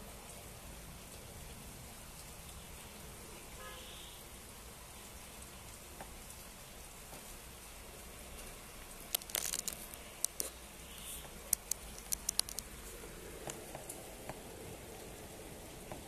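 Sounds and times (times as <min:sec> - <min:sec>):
rain hissing: 0:00.0 - 0:16.0
clicks and crackles at microphone: 0:09.0 - 0:12.8.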